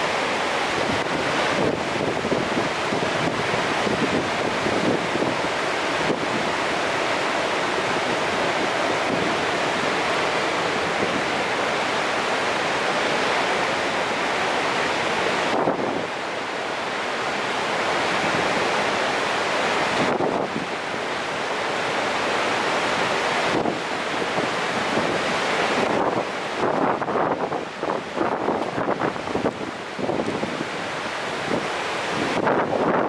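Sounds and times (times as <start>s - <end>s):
waterfall rushing: 0.0s - 33.0s.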